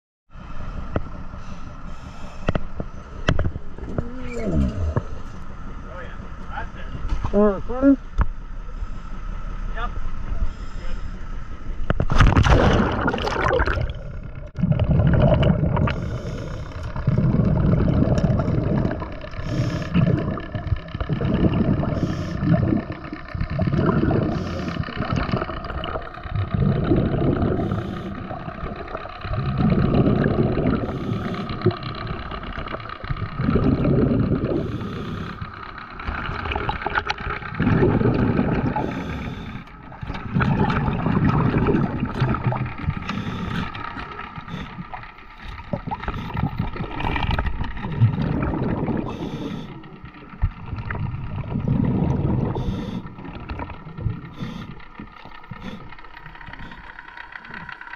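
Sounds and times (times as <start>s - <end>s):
underwater rushing and bubbling: 0.3s - 7.2s, 8.0s - 57.9s
splash into water: 12.1s - 13.9s.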